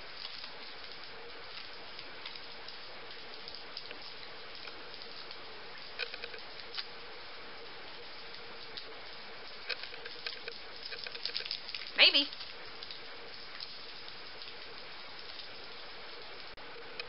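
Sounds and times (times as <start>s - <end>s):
steady hiss: 0.0s - 17.0s
foil wrapper crinkling: 9.6s - 16.4s.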